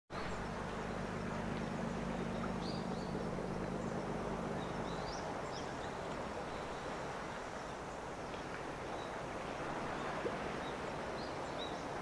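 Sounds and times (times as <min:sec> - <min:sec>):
low hum: 0:00.2 - 0:07.5.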